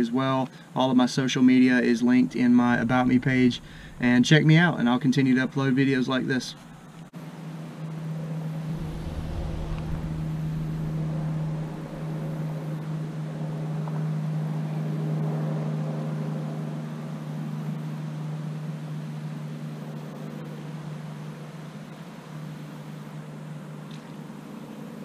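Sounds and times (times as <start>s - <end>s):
low rumble: 2.6s - 4.6s, 8.5s - 13.7s
boat motor humming: 2.7s - 4.3s, 6.7s - 15.8s.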